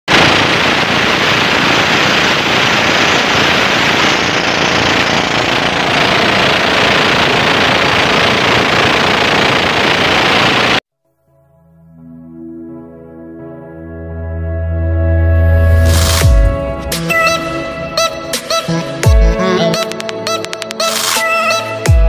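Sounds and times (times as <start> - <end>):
water rushing along hull: 0.1 - 10.7
boat engine running: 0.1 - 10.8.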